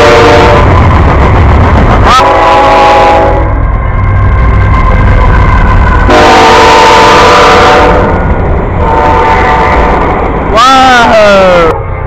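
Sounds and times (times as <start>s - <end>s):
locomotive air horn chord: 0.0s - 0.6s, 2.1s - 3.5s, 6.1s - 8.1s, 8.8s - 9.8s
freight train rumbling past: 0.0s - 12.0s.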